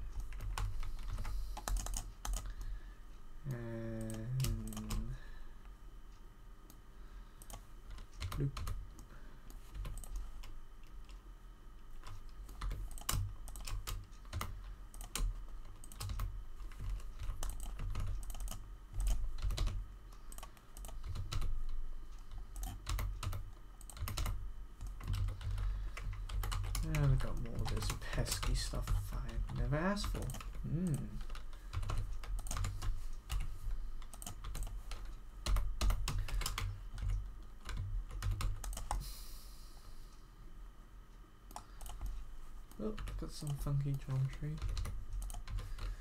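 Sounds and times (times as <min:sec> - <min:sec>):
keyboard keys tapping: 0:00.0 - 0:02.6, 0:12.0 - 0:39.0, 0:42.9 - 0:46.0
low hummed voice: 0:03.3 - 0:05.6, 0:08.0 - 0:10.2, 0:24.0 - 0:33.4, 0:42.7 - 0:46.0.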